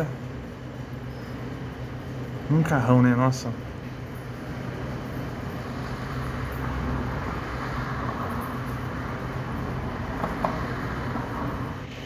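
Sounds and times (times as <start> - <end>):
road noise: 0.0 - 12.0
cars driving slowly: 3.8 - 12.0.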